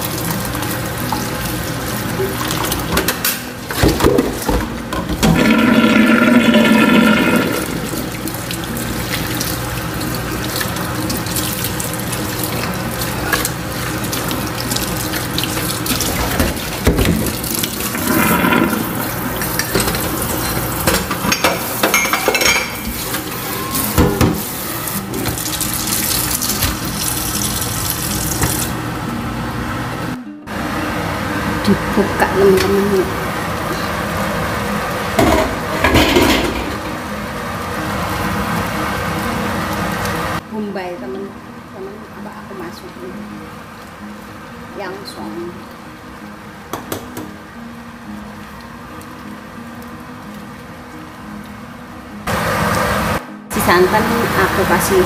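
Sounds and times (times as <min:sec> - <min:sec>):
tap water running into sink: 0:00.0 - 0:28.8
dishes knocking: 0:35.2 - 0:36.9.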